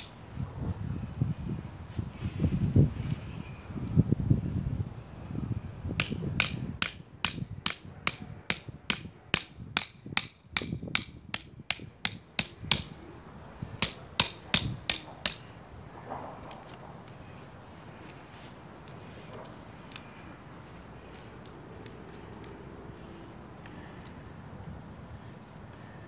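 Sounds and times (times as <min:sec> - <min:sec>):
hatchet tapping knife spine: 0:06.0 - 0:12.9, 0:13.8 - 0:15.5.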